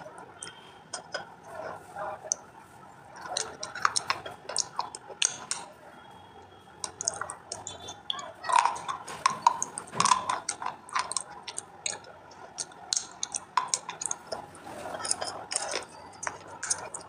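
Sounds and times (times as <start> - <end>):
crunching of brittle clay chewed: 3.1 - 5.8, 6.8 - 17.0.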